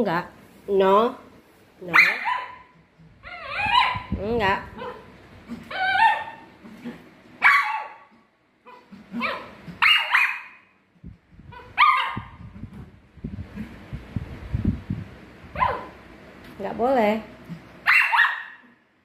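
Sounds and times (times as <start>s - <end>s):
small dog barking: 1.9s - 2.7s, 3.4s - 4.1s, 4.7s - 5.1s, 5.7s - 6.5s, 7.4s - 8.1s, 8.7s - 10.7s, 11.5s - 12.4s, 15.5s - 16.0s, 17.8s - 18.8s.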